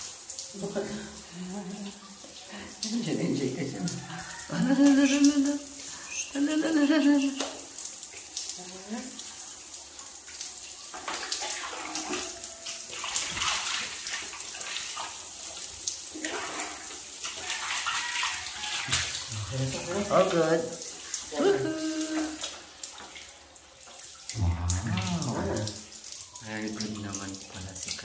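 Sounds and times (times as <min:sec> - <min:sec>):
person speaking: 0:19.3 - 0:20.6, 0:21.3 - 0:22.3, 0:24.3 - 0:25.8.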